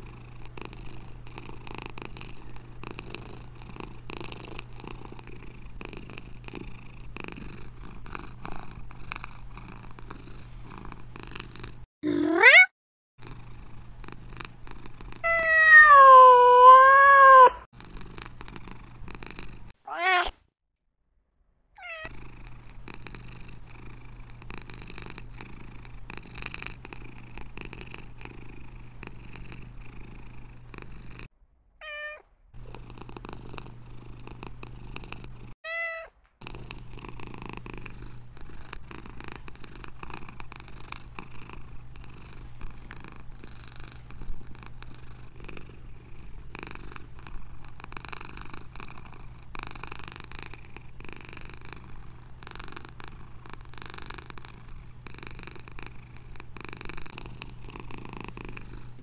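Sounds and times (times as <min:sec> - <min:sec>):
cat purring: 0:00.0 - 0:20.3, 0:21.8 - 0:35.6, 0:36.2 - 0:59.0
cat meowing: 0:12.0 - 0:12.7, 0:15.2 - 0:17.7, 0:19.8 - 0:20.4, 0:21.8 - 0:22.1, 0:31.8 - 0:32.3, 0:35.6 - 0:36.2.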